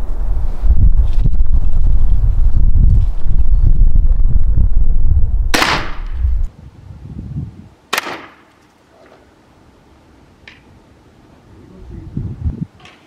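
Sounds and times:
wind rumble on microphone: 0:00.0 - 0:07.8, 0:11.5 - 0:12.8
crossbow shot cracks: 0:05.5 - 0:06.2, 0:07.9 - 0:08.6.

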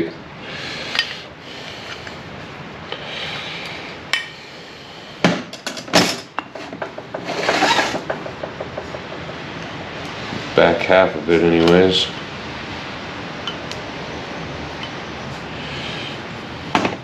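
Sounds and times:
sharp knocks: 0:05.2 - 0:09.8, 0:16.7 - 0:17.0.

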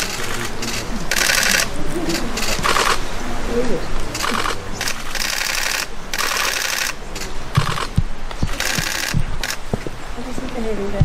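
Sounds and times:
camera shutters clicking in bursts: 0:00.0 - 0:03.0, 0:04.2 - 0:09.7.

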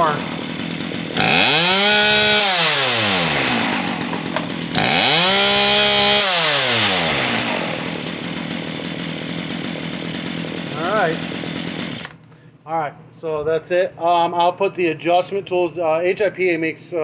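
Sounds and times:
chainsaw engine revving and idling: 0:00.0 - 0:12.2.

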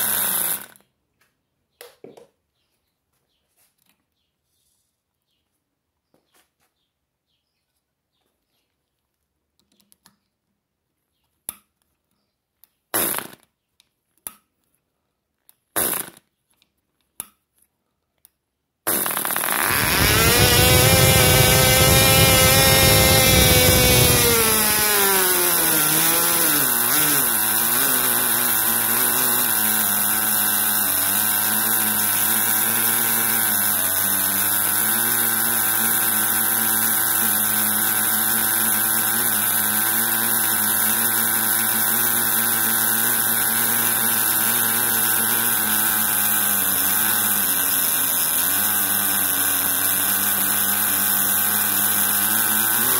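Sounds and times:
small model engine running high: 0:00.0 - 0:00.8, 0:18.9 - 0:52.9
model engine pops and sputters: 0:12.9 - 0:13.5, 0:18.9 - 0:52.9.

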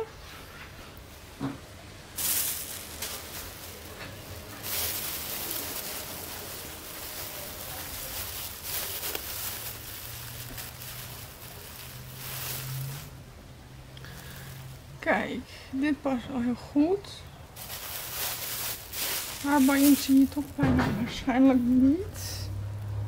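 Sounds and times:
plastic bag crinkling: 0:02.1 - 0:13.2, 0:17.6 - 0:21.9.

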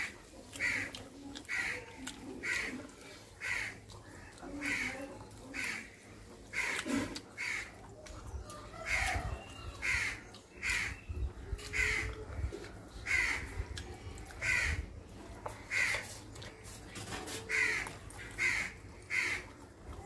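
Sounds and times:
crow cawing: 0:03.4 - 0:03.8, 0:06.5 - 0:07.7, 0:09.8 - 0:11.0, 0:11.7 - 0:12.1, 0:13.0 - 0:13.5, 0:14.4 - 0:14.8, 0:15.7 - 0:16.0, 0:17.5 - 0:19.5.

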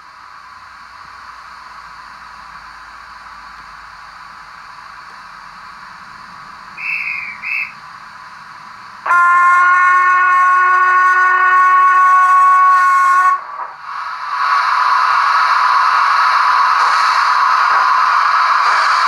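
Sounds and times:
loud long train whistle: 0:06.8 - 0:07.8, 0:09.0 - 0:13.7
short high whistle toots: 0:06.8 - 0:07.8
steam hiss from small speaker: 0:11.9 - 0:19.0.

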